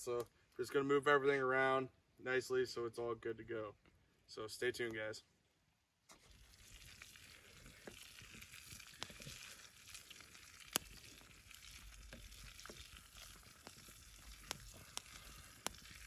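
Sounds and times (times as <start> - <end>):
sausages sizzling in a pan: 6.2 - 16.0.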